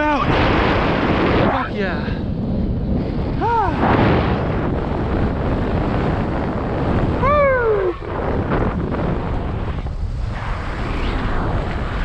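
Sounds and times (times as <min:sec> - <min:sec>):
airflow rushing over microphone: 0:00.0 - 0:12.0
pilot whooping: 0:07.2 - 0:08.1.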